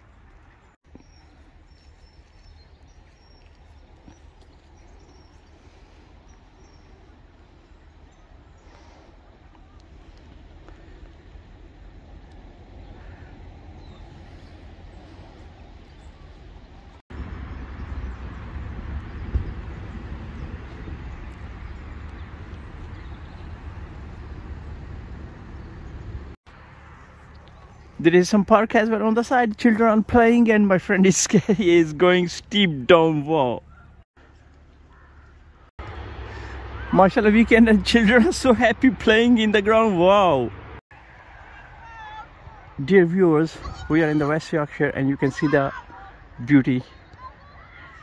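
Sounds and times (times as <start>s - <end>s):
outdoor background noise: 0.0s - 48.0s
small bird chirping: 0.4s - 8.8s, 20.4s - 23.7s
low steady rumble: 2.8s - 28.5s.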